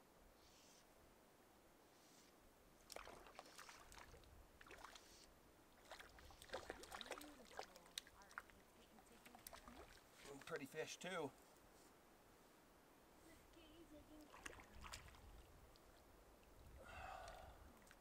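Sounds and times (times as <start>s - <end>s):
water splashing and sloshing: 2.8s - 10.7s, 14.0s - 16.8s.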